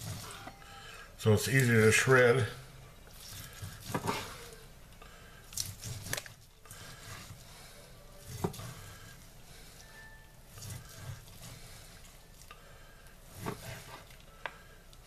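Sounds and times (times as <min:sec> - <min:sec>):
knife slicing chicken: 0:03.2 - 0:04.5, 0:05.5 - 0:07.6, 0:08.2 - 0:09.2, 0:10.5 - 0:11.7, 0:13.3 - 0:14.1.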